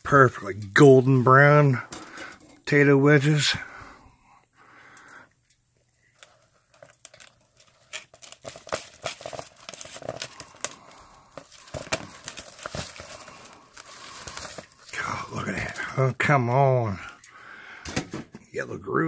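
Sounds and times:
paper towel crinkling: 0:06.1 - 0:17.1.

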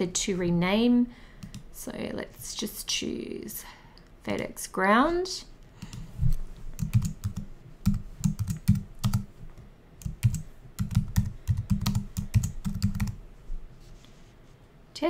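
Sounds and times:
typing on computer keyboard: 0:01.4 - 0:01.6, 0:06.8 - 0:09.3, 0:10.0 - 0:13.2.

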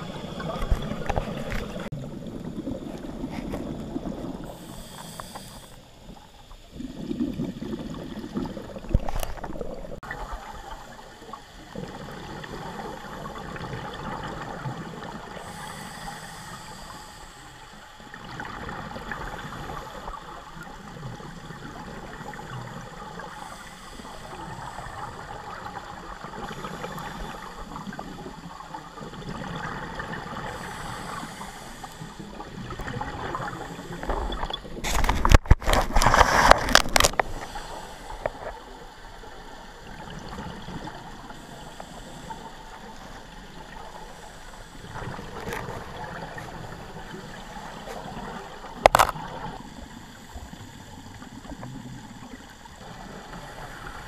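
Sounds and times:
bubbles gurgling underwater: 0:00.0 - 0:04.6, 0:06.1 - 0:15.4, 0:18.0 - 0:23.5, 0:24.2 - 0:37.5, 0:38.2 - 0:41.5
scuba regulator breathing: 0:03.2 - 0:06.2, 0:15.3 - 0:18.0, 0:22.7 - 0:25.4, 0:30.3 - 0:32.5, 0:33.2 - 0:34.4, 0:35.0 - 0:38.8, 0:41.2 - 0:43.1.

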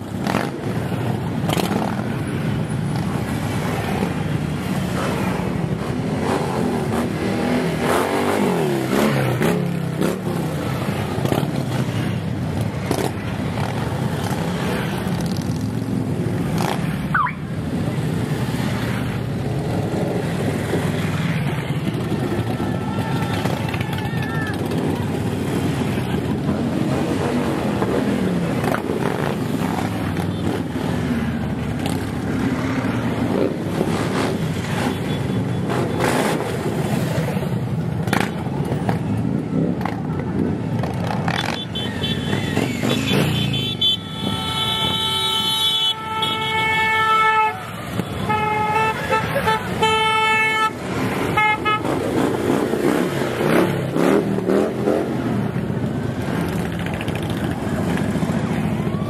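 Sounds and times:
motorcycles riding past: 0:00.0 - 0:59.0
horn blasts and toots: 0:41.4 - 0:52.2.

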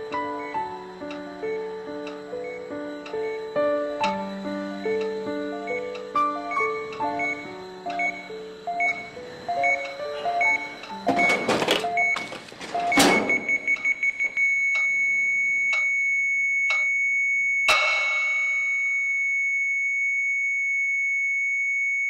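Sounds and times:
medical monitor alarm beeping: 0:00.0 - 0:19.8
clock ticking: 0:00.1 - 0:03.3, 0:04.8 - 0:09.0.

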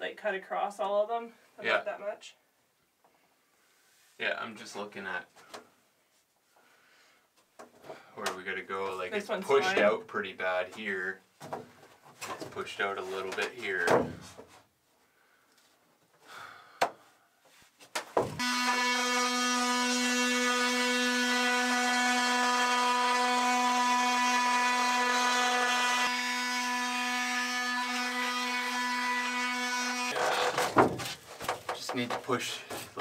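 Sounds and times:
power tool buzzing: 0:18.2 - 0:31.0
small knocks: 0:30.5 - 0:32.9.

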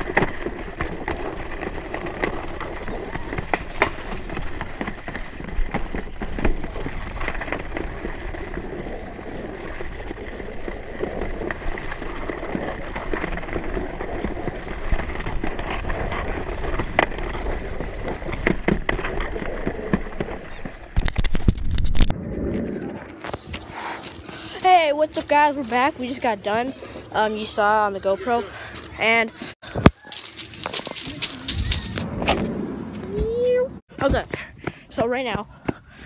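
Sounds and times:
sled knocking and bumping: 0:00.0 - 0:22.1
sled scraping on concrete track: 0:00.0 - 0:34.3.

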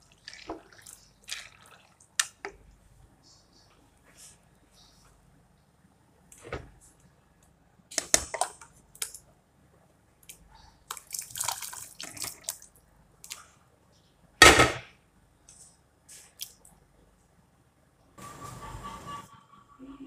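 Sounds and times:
small water drips: 0:00.0 - 0:02.6, 0:10.2 - 0:13.5.

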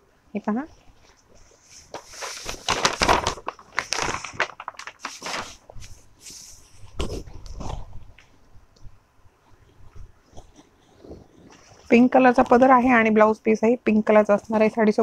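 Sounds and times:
silk fabric rustling: 0:00.9 - 0:08.6
paper packaging crinkling: 0:01.0 - 0:08.4.

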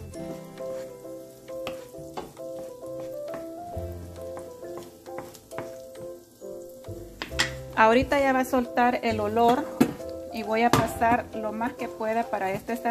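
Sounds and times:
food sizzling in hot oil: 0:00.0 - 0:12.9
soft background music: 0:00.0 - 0:12.9
wooden spatula stirring: 0:00.1 - 0:06.0, 0:07.2 - 0:12.9.

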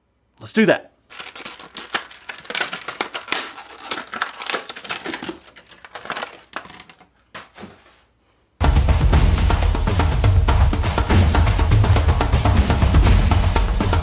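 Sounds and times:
pens clicking together: 0:01.1 - 0:07.0
plastic package crinkling: 0:01.1 - 0:08.0.

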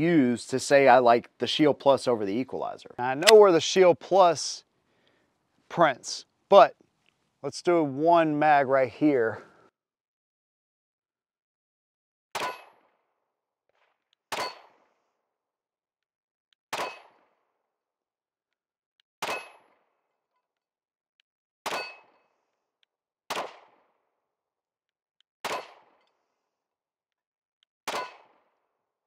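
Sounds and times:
pistol shots: 0:14.3 - 0:15.0, 0:16.7 - 0:17.3, 0:19.2 - 0:19.8, 0:23.3 - 0:23.9, 0:25.4 - 0:26.0, 0:27.9 - 0:28.5.

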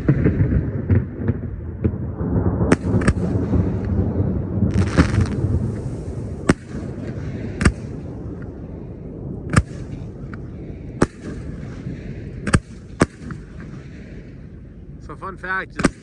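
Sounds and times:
fireworks bangs: 0:00.0 - 0:15.1, 0:15.7 - 0:16.0
steady low background noise: 0:00.0 - 0:16.0.

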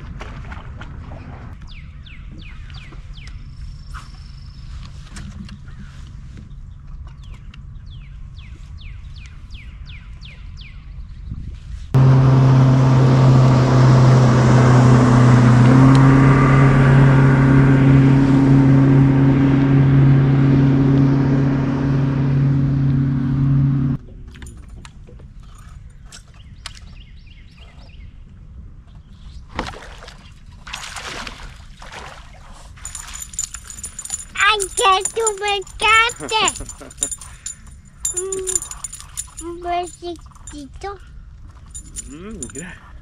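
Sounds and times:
boat motor running: 0:12.0 - 0:24.4, 0:32.9 - 0:39.6.

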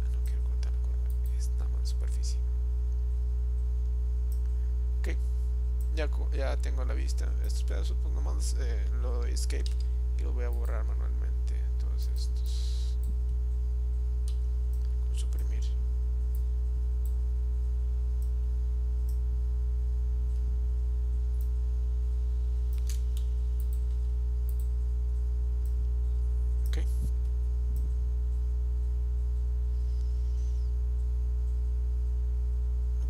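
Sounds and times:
electrical mains hum: 0:00.0 - 0:33.0
computer mouse clicking: 0:22.7 - 0:24.7.

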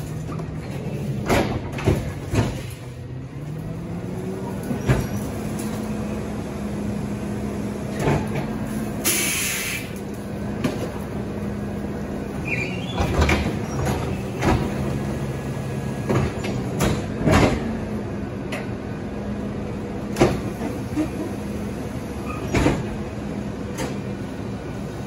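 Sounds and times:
garbage truck humming: 0:00.0 - 0:25.0
short hiss: 0:09.0 - 0:10.0.

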